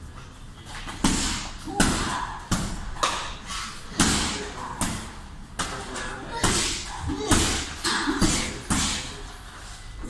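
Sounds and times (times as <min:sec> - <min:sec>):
punches hitting heavy bag: 0:01.0 - 0:03.0, 0:06.3 - 0:09.1.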